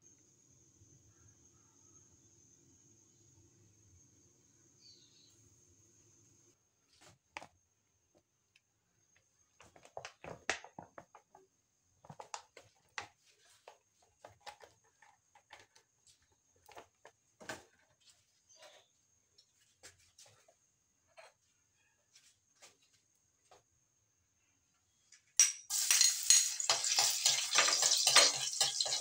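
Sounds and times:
oil crackling in a wok: 0:25.7 - 0:29.0.

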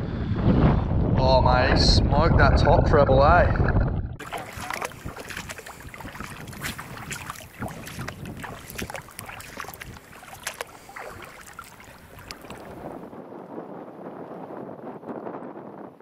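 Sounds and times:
wind on microphone: 0:00.0 - 0:16.0
shallow water splashing and trickling: 0:04.2 - 0:13.0.

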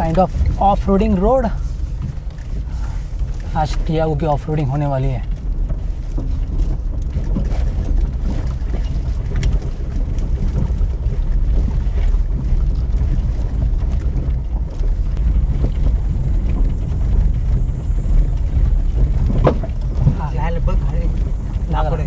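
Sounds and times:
engine and tyres rumbling: 0:00.0 - 0:22.0
knocks from bumps: 0:18.4 - 0:21.5.

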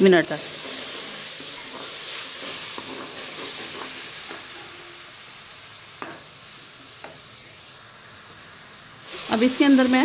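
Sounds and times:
masala sizzling in a pan: 0:00.0 - 0:10.0
metal spoon scraping a pan: 0:00.3 - 0:04.9.

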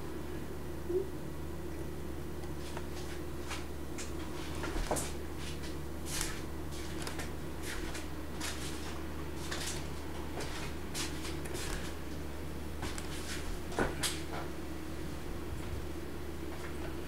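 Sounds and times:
low background hum: 0:00.0 - 0:17.0.

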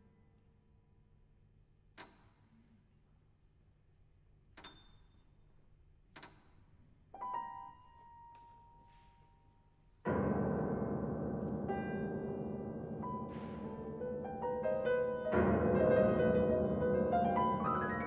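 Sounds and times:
grand piano notes: 0:10.0 - 0:18.0
loud dense piano chord: 0:10.1 - 0:18.0.

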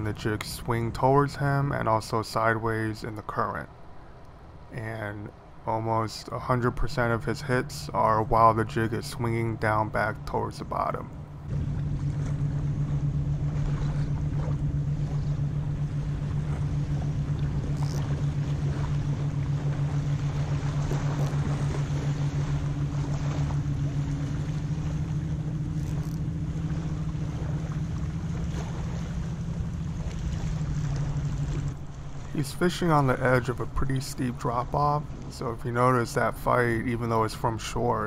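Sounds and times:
low engine drone: 0:00.0 - 0:38.0
water noise: 0:00.0 - 0:38.0
wind: 0:00.0 - 0:38.0.

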